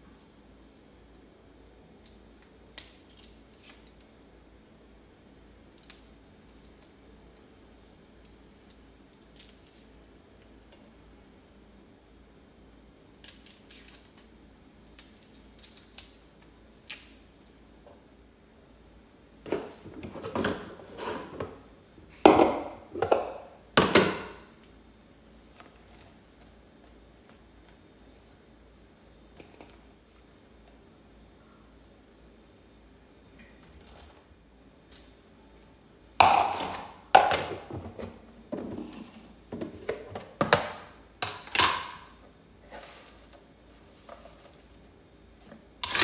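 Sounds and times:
plastic containers clattering: 19.4s - 24.3s, 36.2s - 42.0s.

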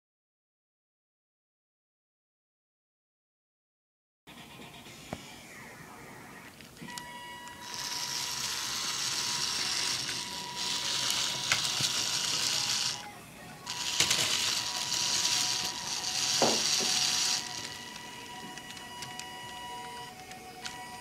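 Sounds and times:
toy train motor whirring: 6.9s - 20.8s.

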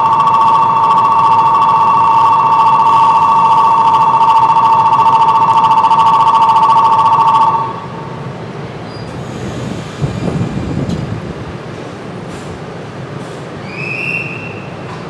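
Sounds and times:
platform departure bell ringing: 0.0s - 8.8s
electric train rumble: 0.0s - 15.0s.

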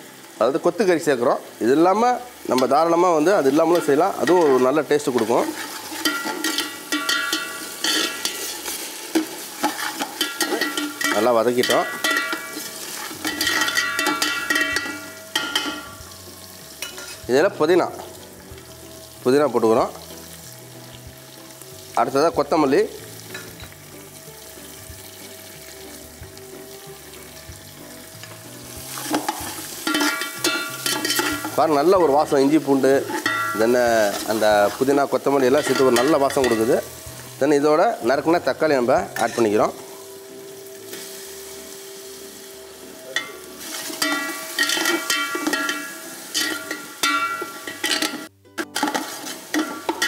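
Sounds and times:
oil sizzling in a pot: 0.0s - 50.0s
ladle scraping and stirring: 3.5s - 15.9s, 28.9s - 31.6s, 43.6s - 50.0s.

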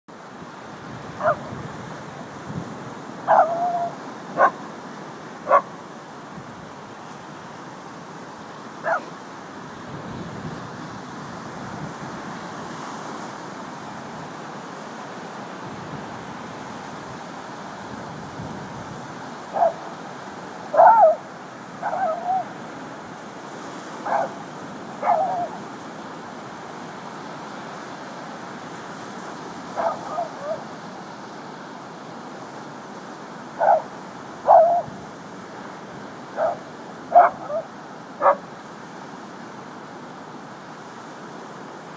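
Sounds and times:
surf: 0.1s - 41.9s
dogs barking: 1.2s - 1.5s, 3.2s - 4.6s, 5.4s - 5.7s, 8.8s - 9.1s, 19.5s - 20.0s, 20.7s - 21.2s, 21.8s - 22.5s, 24.0s - 25.6s, 29.8s - 30.6s, 33.6s - 34.9s, 36.3s - 38.4s.

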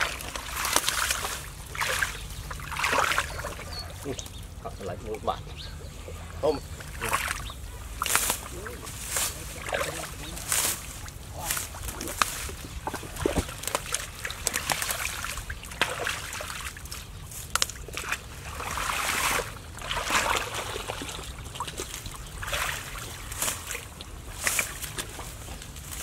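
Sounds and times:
water sloshing and dripping: 0.0s - 4.6s, 6.1s - 26.0s
vegetation tearing and snapping: 8.0s - 15.1s, 17.3s - 18.0s.

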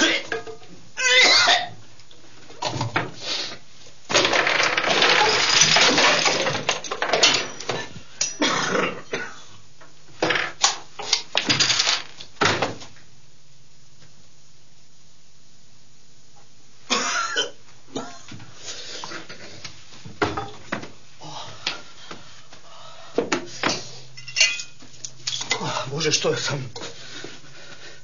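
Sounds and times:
objects clattering and thudding: 0.0s - 0.9s, 4.1s - 8.4s, 10.1s - 13.0s, 19.2s - 21.0s.

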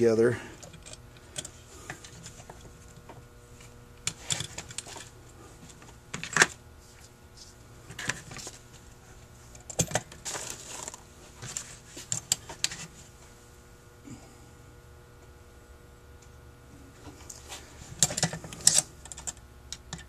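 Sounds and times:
small metal parts clinking: 18.0s - 20.0s.

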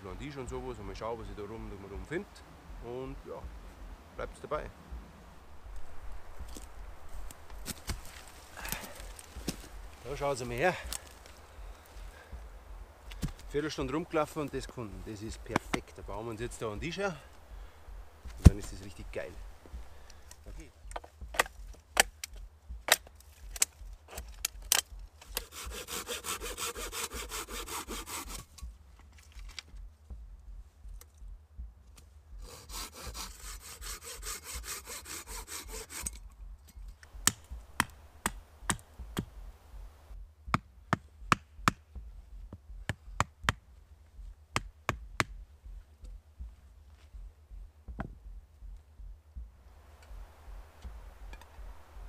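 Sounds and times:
stakes pounded into ground: 18.3s - 18.9s
sharp wooden knocks: 20.8s - 28.7s, 37.1s - 39.4s, 40.5s - 43.6s
hand saw cutting wood: 25.2s - 28.6s, 32.4s - 36.2s.

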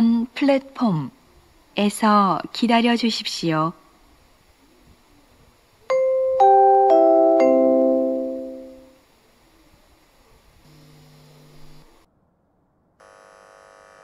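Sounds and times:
faint steady hum: 0.0s - 14.0s
falling electronic chime: 6.0s - 8.9s.

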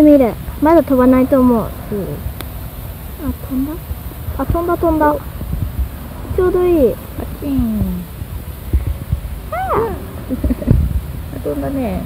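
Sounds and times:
person exclaiming: 9.5s - 10.4s.

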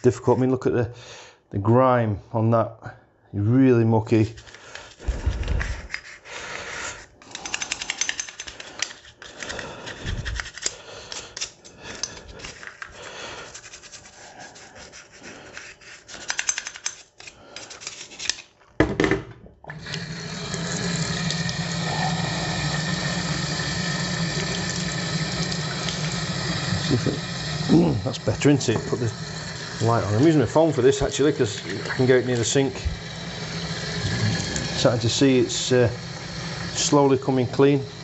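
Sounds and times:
toothbrush scrubbing metal: 5.6s - 6.3s, 6.9s - 18.5s
tap water running into sink: 19.7s - 38.0s.

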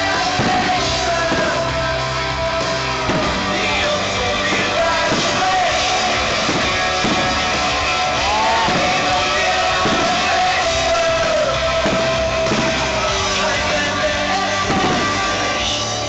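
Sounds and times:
rock music over sound system: 0.0s - 16.0s
drum hits: 2.6s - 13.8s, 14.6s - 15.4s.

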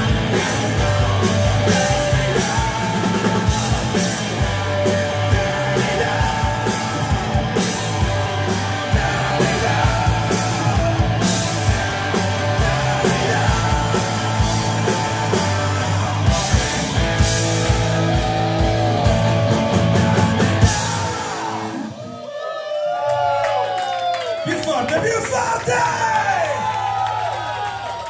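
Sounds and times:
bass guitar: 0.0s - 22.0s
drum kit: 0.0s - 22.0s
electric guitars: 0.0s - 22.2s.

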